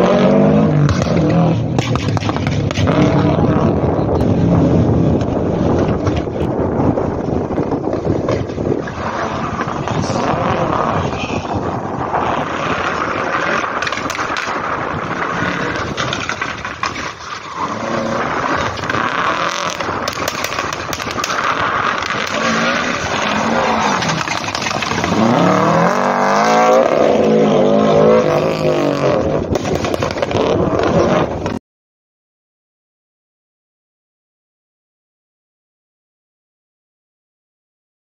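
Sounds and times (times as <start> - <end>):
car engine revving hard: 0.0 - 1.6, 20.5 - 29.5.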